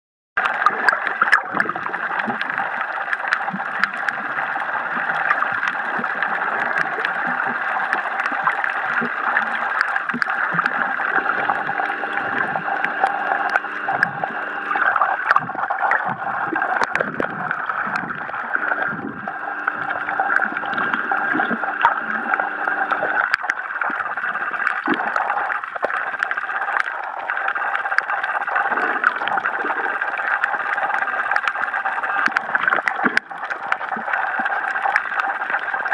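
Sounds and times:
muffled underwater hum: 0:00.4 - 0:35.9
water gurgling: 0:00.4 - 0:35.9
low droning tone: 0:03.6 - 0:23.4.

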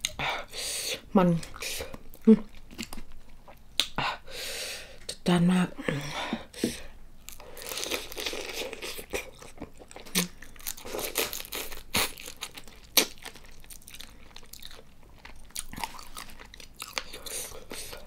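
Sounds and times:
crunchy chewing: 0:07.3 - 0:18.0.

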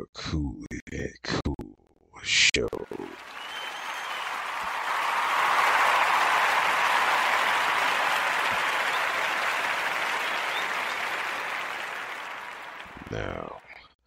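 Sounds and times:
crowd applause: 0:02.8 - 0:13.7.

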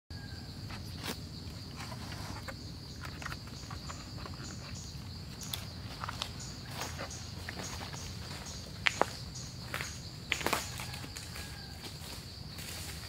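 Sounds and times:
insects droning: 0:00.1 - 0:13.0.

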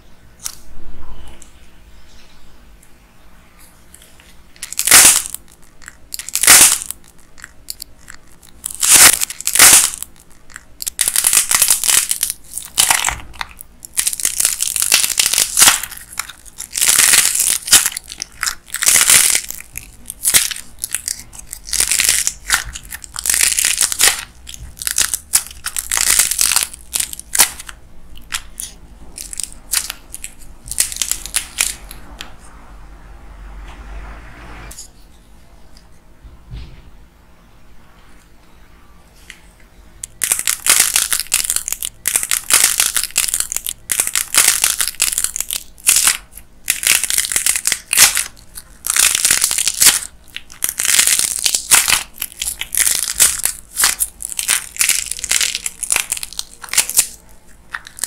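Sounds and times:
dried clay cracking and crunching: 0:03.9 - 0:32.0, 0:40.0 - 0:58.0.

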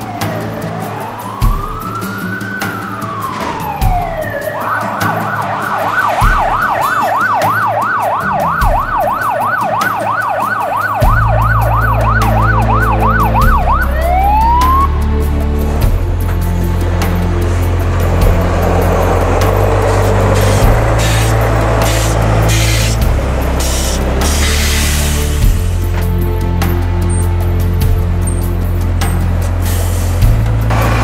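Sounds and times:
fire engine siren: 0:00.0 - 0:15.3, 0:16.3 - 0:26.2
music with deep bass line: 0:00.0 - 0:31.0.

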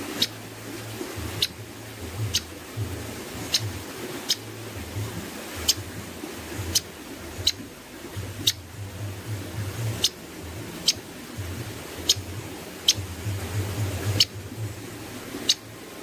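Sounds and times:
bird clicking calls: 0:00.2 - 0:00.4, 0:03.4 - 0:04.4, 0:12.0 - 0:13.1.

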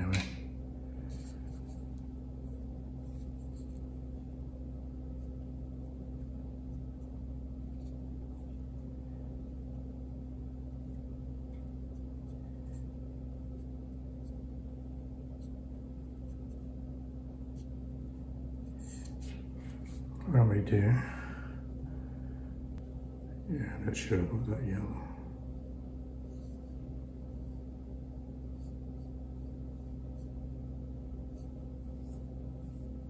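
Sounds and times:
low electrical hum: 0:00.0 - 0:33.0
paintbrush scratching: 0:01.0 - 0:04.1, 0:31.2 - 0:33.0.

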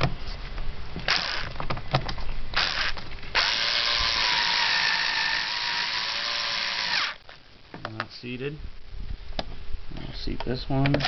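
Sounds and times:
power drill motor running: 0:01.1 - 0:01.5, 0:02.6 - 0:07.2.

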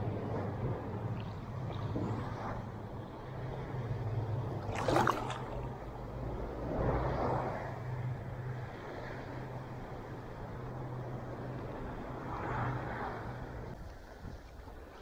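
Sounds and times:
small waves lapping: 0:00.0 - 0:15.0
steady low hum: 0:00.0 - 0:15.0
water splash: 0:01.1 - 0:02.8, 0:04.6 - 0:05.9.

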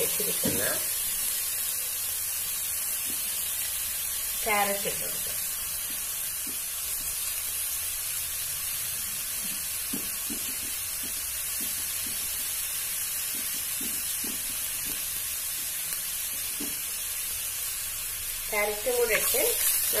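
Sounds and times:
onion sizzling in hot oil: 0:00.0 - 0:20.0
spatula tapping pan: 0:09.4 - 0:12.5, 0:13.2 - 0:15.7.

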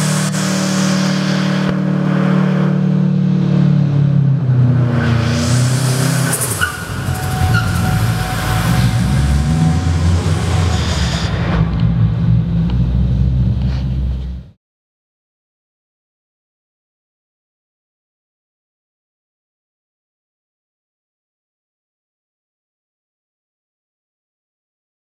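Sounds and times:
car engine revving: 0:00.0 - 0:14.4.

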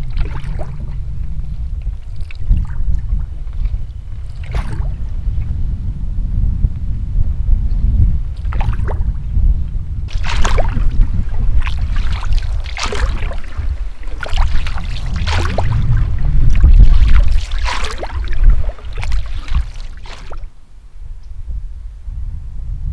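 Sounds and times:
paddle strokes splashing: 0:00.0 - 0:00.9, 0:02.0 - 0:05.0, 0:08.4 - 0:09.0, 0:10.1 - 0:20.5
steady low rumble: 0:00.0 - 0:22.9.

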